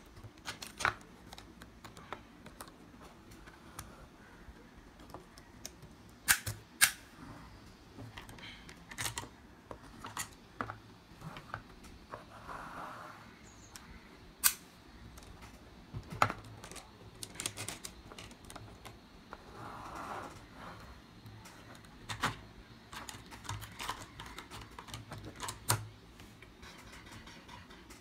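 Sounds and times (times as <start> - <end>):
plastic blocks clicking and knocking: 0.0 - 3.9, 15.0 - 19.4, 21.3 - 25.9.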